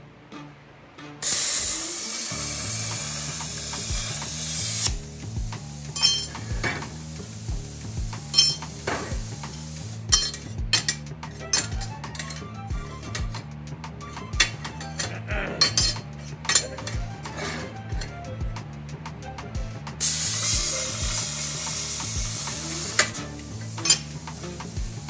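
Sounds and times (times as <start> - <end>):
background music with low beat: 0.0 - 25.0
plasma cutter hissing: 1.2 - 10.4, 20.0 - 25.0.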